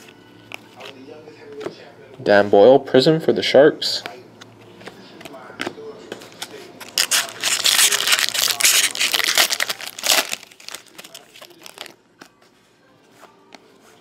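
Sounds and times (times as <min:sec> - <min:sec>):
cards clicking and rustling: 0:04.7 - 0:12.4
foil wrapper tearing and crinkling: 0:06.8 - 0:12.0.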